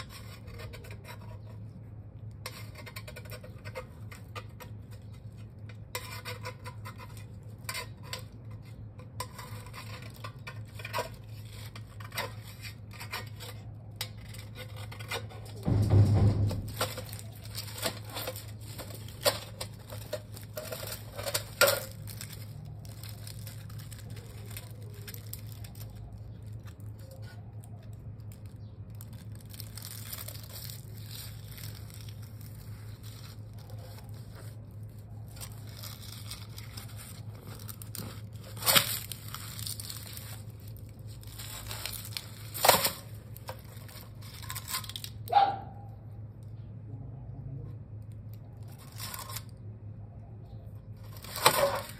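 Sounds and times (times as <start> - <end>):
dry leaves crunching: 15.6 - 27.2, 28.4 - 45.1.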